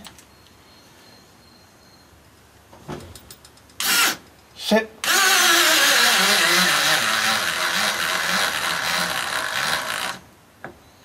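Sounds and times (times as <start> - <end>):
cordless drill driving screw: 3.8 - 4.2, 5.0 - 10.2.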